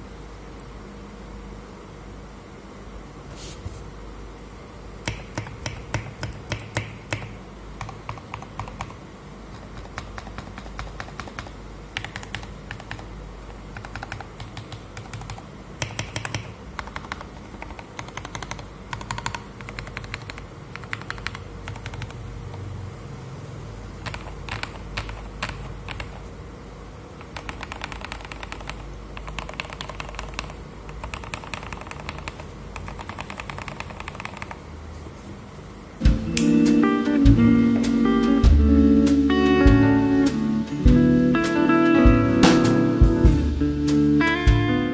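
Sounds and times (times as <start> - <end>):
mechanical keyboard typing: 5.0 - 22.6, 24.0 - 26.3, 27.2 - 34.6.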